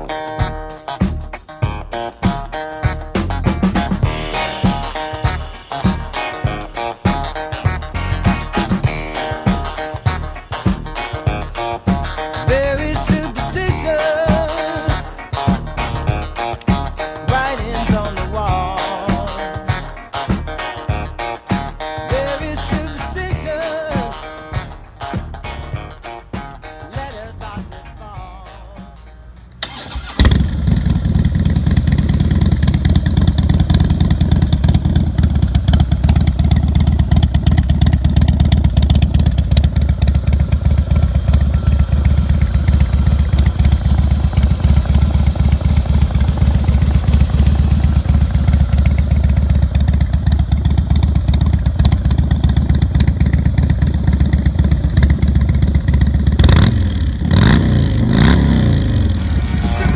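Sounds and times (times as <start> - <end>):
motorcycle engine starting and idling: 27.0 - 59.9.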